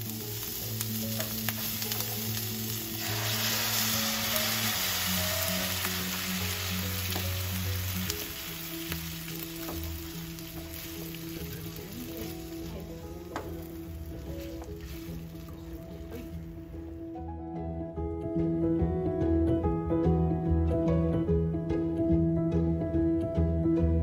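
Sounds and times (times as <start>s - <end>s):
onions sizzling in frying pan: 0.0s - 16.5s.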